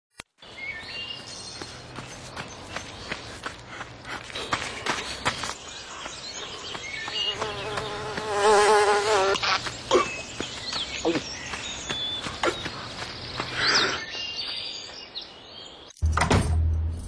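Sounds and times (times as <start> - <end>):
insect buzzing: 7.1 - 9.7.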